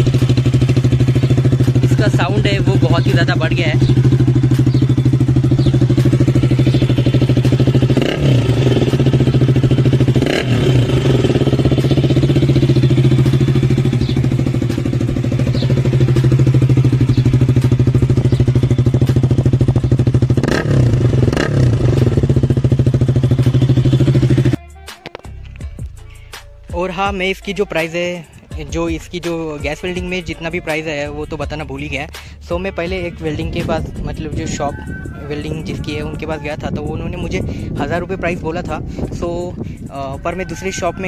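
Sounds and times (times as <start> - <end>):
motorcycle engine running loud: 0.0 - 24.6, 32.8 - 41.0.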